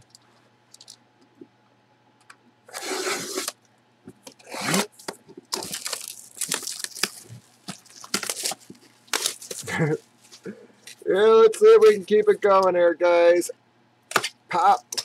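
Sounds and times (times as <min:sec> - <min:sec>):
cutter slitting cardboard box: 0:02.7 - 0:03.6, 0:04.5 - 0:05.0
plastic wrapping crinkling: 0:05.0 - 0:11.0.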